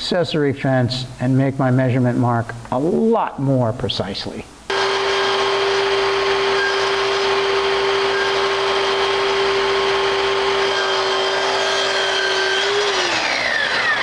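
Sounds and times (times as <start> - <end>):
miter saw whining: 4.7 - 14.0.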